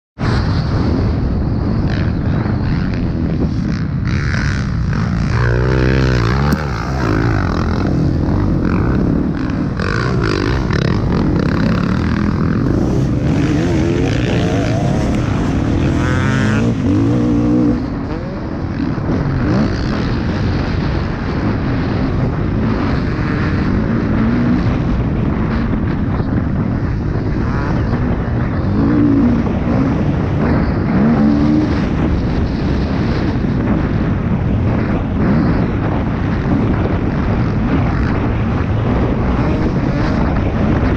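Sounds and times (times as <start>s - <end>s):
motocross bike engine revving: 1.9s - 34.0s.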